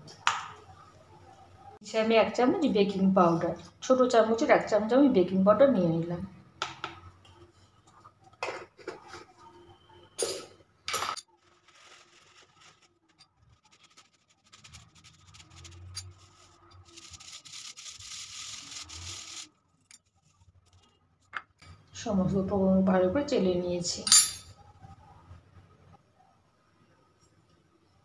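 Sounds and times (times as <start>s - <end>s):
flour rubbed through mesh sieve: 11.3s - 20.8s.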